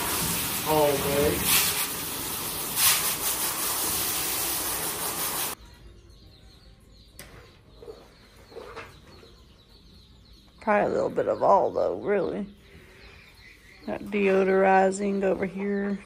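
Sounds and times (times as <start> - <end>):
hose spraying water: 0.0 - 5.6.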